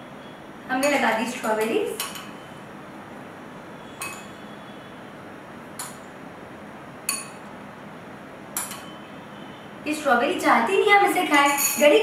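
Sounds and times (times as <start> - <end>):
metal spoon clinking on glass: 4.0 - 4.4, 11.4 - 12.0.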